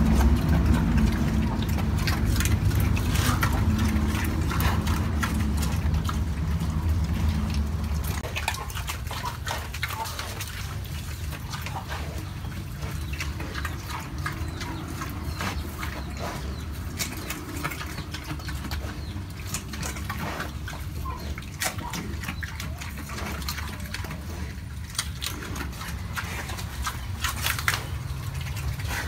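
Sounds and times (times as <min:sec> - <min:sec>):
low rumble: 0:00.0 - 0:09.2
pig chewing and crunching: 0:00.0 - 0:29.0.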